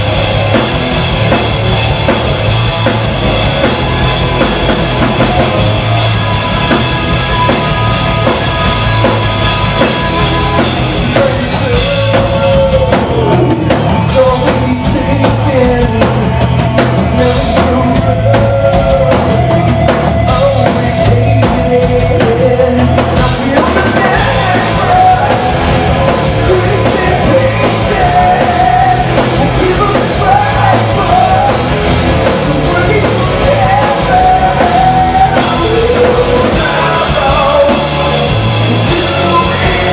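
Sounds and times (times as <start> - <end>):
bass guitar: 0.0 - 39.9
drum kit beat: 0.0 - 39.9
electric guitars: 0.0 - 39.9
lead singer's voice: 0.0 - 39.9.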